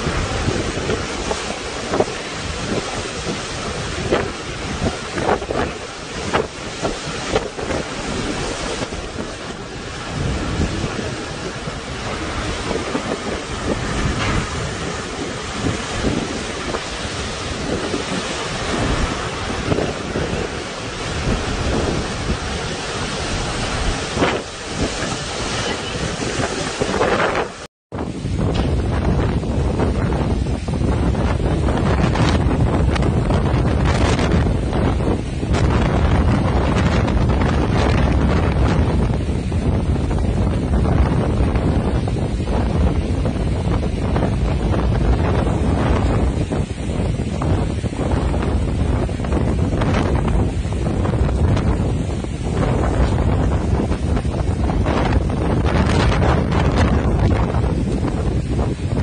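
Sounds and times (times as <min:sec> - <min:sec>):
heavy rain: 0:00.0 - 0:59.0
strong wind: 0:00.0 - 0:59.0
wind gusts buffeting microphone: 0:00.0 - 0:59.0.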